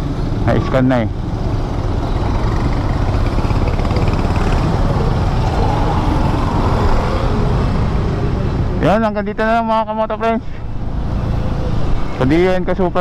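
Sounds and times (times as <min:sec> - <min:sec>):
surrounding traffic: 0:00.0 - 0:13.0
scooter engine rumble: 0:01.1 - 0:08.8.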